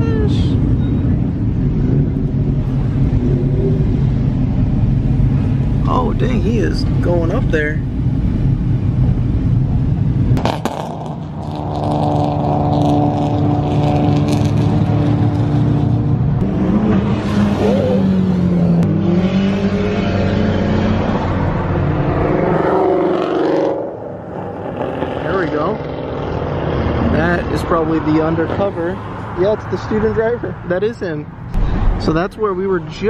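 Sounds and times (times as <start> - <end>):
car engines revving: 0.0 - 33.0.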